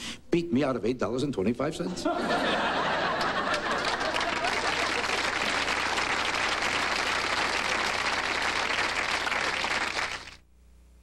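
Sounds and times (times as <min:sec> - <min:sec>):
audience applause: 0:02.7 - 0:10.4.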